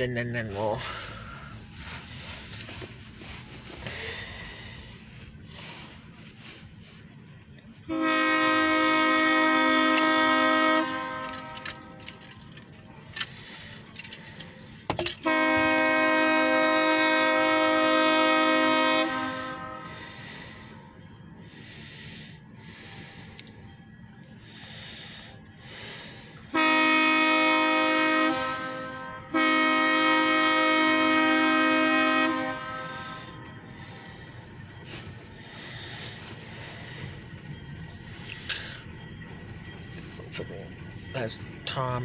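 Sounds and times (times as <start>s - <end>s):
train low rumble: 0.0s - 42.0s
locomotive air horn blasts: 7.8s - 12.3s, 15.2s - 20.4s, 26.4s - 34.2s.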